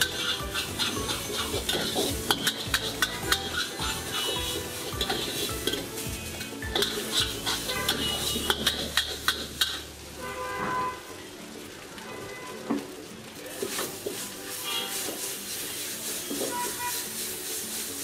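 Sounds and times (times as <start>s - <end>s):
metal spatula scraping a wok: 0.0s - 9.9s, 13.7s - 18.0s
food sizzling: 0.0s - 18.0s.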